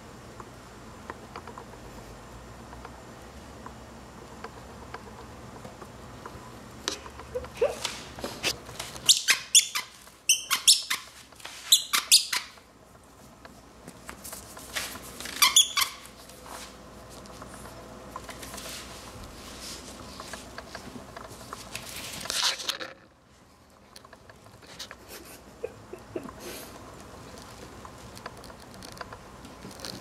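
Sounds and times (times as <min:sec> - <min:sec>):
squeaky dog toy squeaking: 0:09.1 - 0:11.1, 0:11.7 - 0:12.6, 0:15.4 - 0:16.0.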